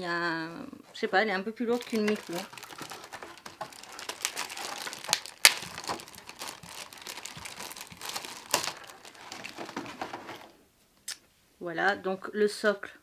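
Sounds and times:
plastic packaging crinkling: 0:01.6 - 0:10.6.

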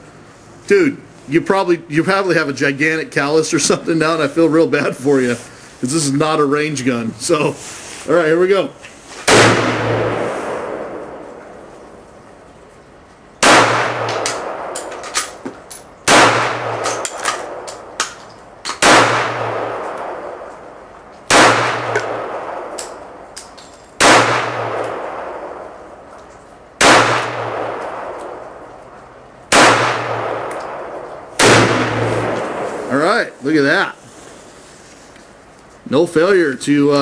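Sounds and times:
pistol shots echoing: 0:09.3 - 0:11.4, 0:13.4 - 0:15.4, 0:16.0 - 0:17.9, 0:18.7 - 0:20.5, 0:21.3 - 0:23.2, 0:24.0 - 0:25.8, 0:26.8 - 0:28.7, 0:29.5 - 0:32.9.

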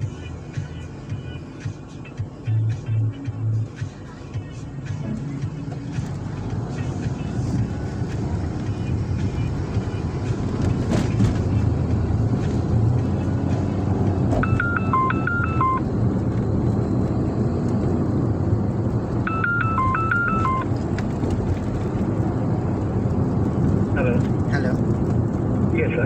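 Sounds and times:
car engine and tyre rumble: 0:00.0 - 0:26.0
mobile phone ringtone: 0:14.4 - 0:15.9, 0:19.3 - 0:20.7.

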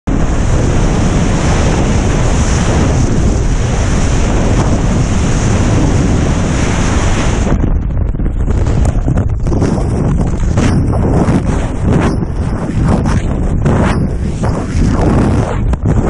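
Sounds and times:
rushing wind on microphone: 0:00.1 - 0:16.0.

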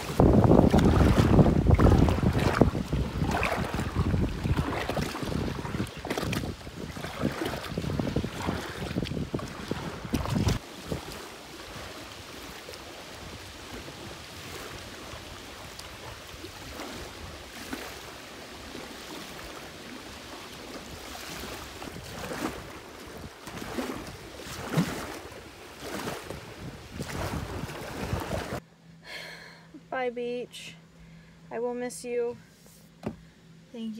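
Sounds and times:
wind on microphone: 0:00.0 - 0:12.2, 0:26.0 - 0:28.6
small waves lapping: 0:00.0 - 0:28.6.

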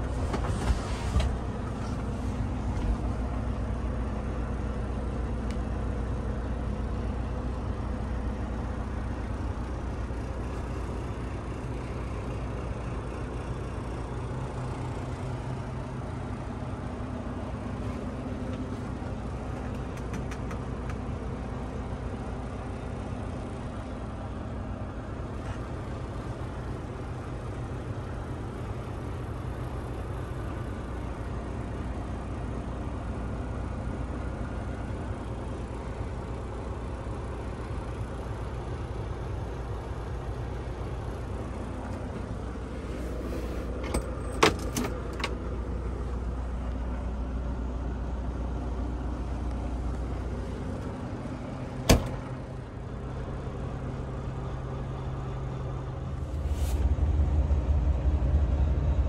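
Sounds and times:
diesel truck engine idling: 0:00.0 - 0:59.0
clicks: 0:19.5 - 0:21.0.

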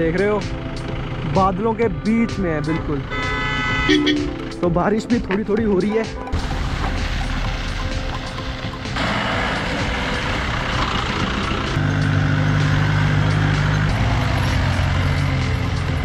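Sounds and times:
tyres hissing on wet road: 0:06.4 - 0:08.2, 0:08.9 - 0:15.4
vehicle engine passing: 0:06.4 - 0:16.0.

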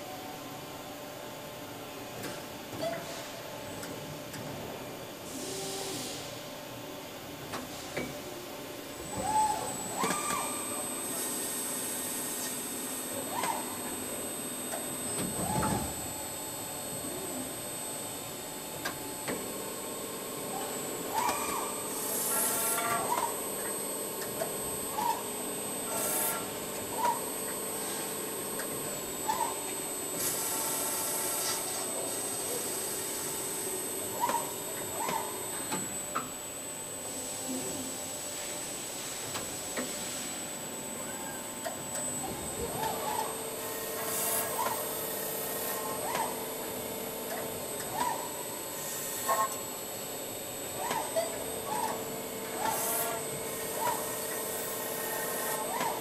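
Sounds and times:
milling machine running: 0:16.1 - 0:36.8, 0:41.5 - 0:56.0.

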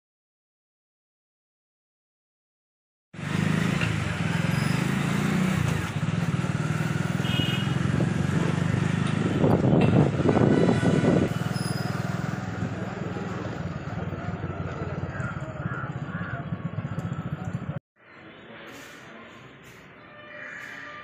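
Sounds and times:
vehicle rumble: 0:03.2 - 0:17.8
wind on microphone: 0:09.2 - 0:11.4.

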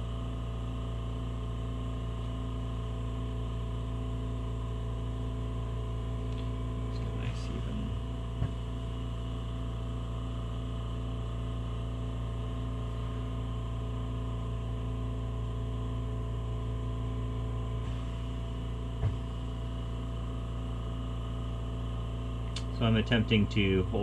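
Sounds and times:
torch flame hissing: 0:17.8 - 0:18.6.

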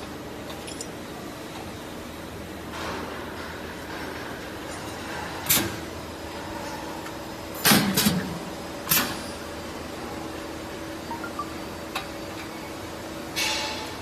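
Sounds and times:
machine hum: 0:05.9 - 0:14.0.

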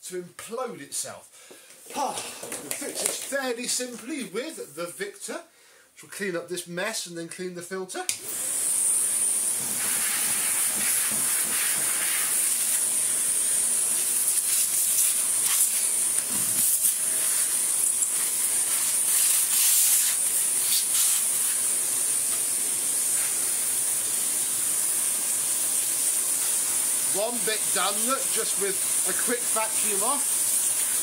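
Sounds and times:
cordless vacuum running: 0:08.1 - 0:31.0.

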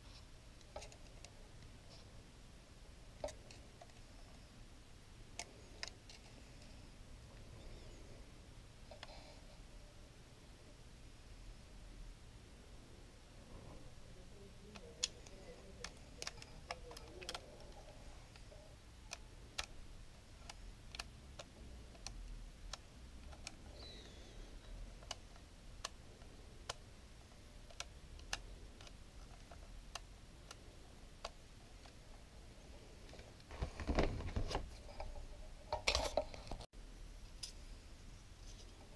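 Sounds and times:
small mechanism clicking: 0:14.6 - 0:19.8, 0:20.4 - 0:26.9, 0:27.6 - 0:32.0.

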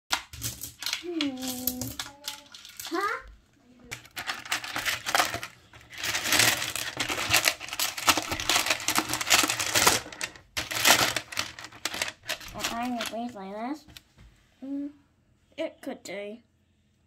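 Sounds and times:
pebbles clattering in plastic tub: 0:00.1 - 0:13.4.

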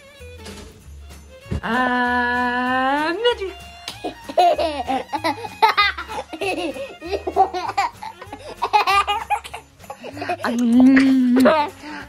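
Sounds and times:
toddler giggling: 0:04.0 - 0:11.8.

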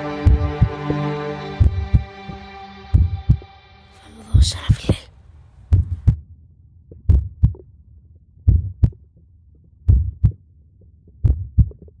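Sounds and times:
slow heartbeat thumps: 0:00.2 - 0:00.9, 0:01.6 - 0:03.5, 0:04.2 - 0:06.3, 0:06.9 - 0:07.7, 0:08.4 - 0:12.0.

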